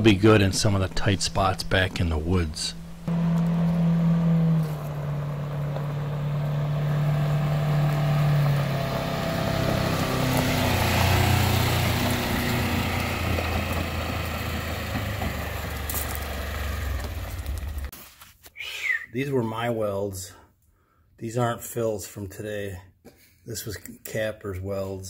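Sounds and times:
utility vehicle engine running: 0.0 - 17.9
tyres on gravel: 0.0 - 18.3.

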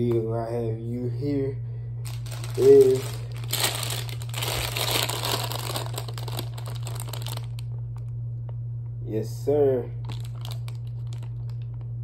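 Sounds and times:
steady low hum: 0.0 - 12.0
foil snack bag crinkling: 2.0 - 7.8, 10.0 - 11.8.

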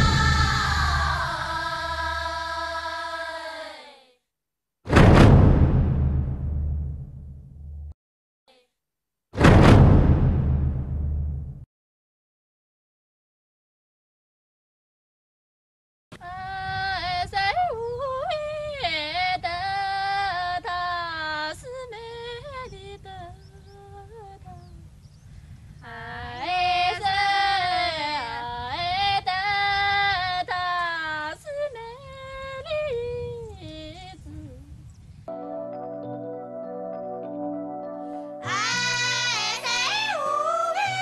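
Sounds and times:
steady low rumble: 0.0 - 2.6, 4.9 - 8.0, 9.4 - 11.7
woman singing unaccompanied: 16.2 - 24.9, 25.8 - 34.8, 38.4 - 41.0.

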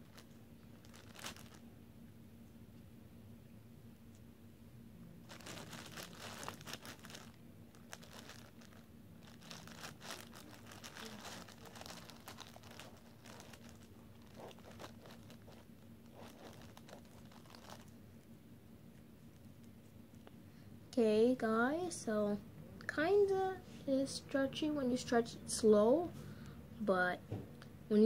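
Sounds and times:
sticky slime crackling: 5.3 - 17.9.

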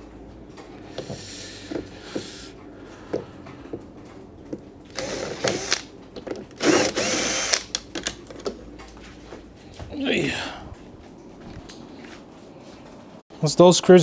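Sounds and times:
cordless drill running: 4.9 - 5.9, 6.6 - 7.7.

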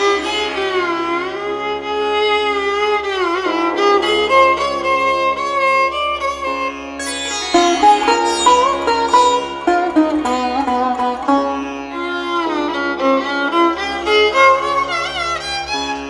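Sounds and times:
violin-like melody: 0.0 - 16.0.

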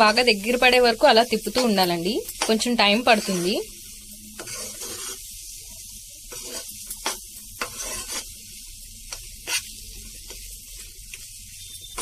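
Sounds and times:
food sizzling in a pan: 0.0 - 12.0
metal spoon scraping pan: 1.4 - 3.7, 4.4 - 5.3, 6.3 - 8.4, 9.1 - 10.9, 11.6 - 12.0.

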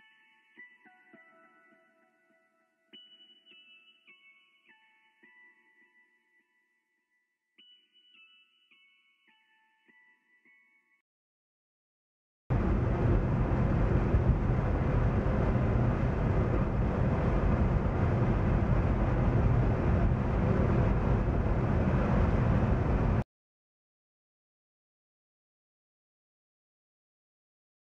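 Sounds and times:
road and engine noise in car: 12.6 - 23.2.

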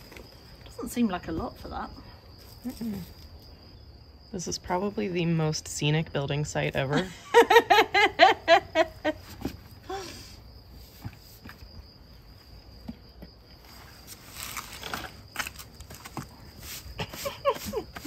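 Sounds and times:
high insect trill: 0.0 - 18.0
woman laughing: 6.9 - 9.3, 17.0 - 18.0.

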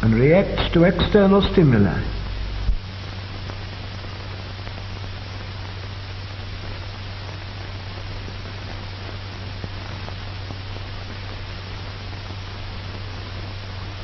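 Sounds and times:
deep rumble: 0.0 - 3.1
film soundtrack hiss: 0.0 - 14.0
low mains hum: 0.0 - 14.0.

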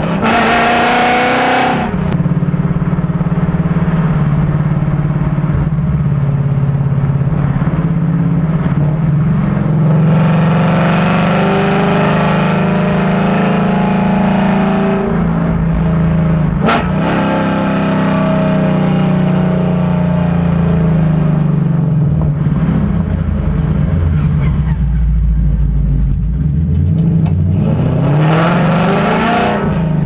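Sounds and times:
car exhaust under acceleration: 0.0 - 30.0
exhaust crack: 1.6 - 9.7, 21.6 - 28.0.

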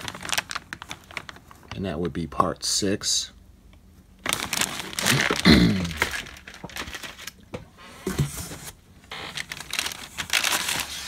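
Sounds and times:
plastic bags crinkling: 0.0 - 1.8, 4.2 - 7.5, 8.4 - 11.0.

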